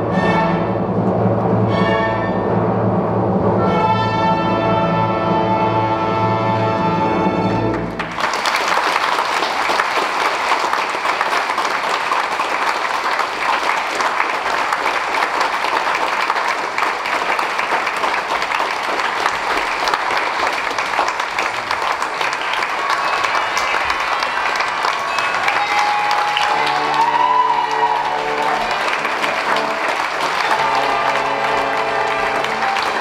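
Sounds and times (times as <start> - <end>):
audience applause: 7.7 - 33.0
orchestra holding final chord: 25.2 - 33.0.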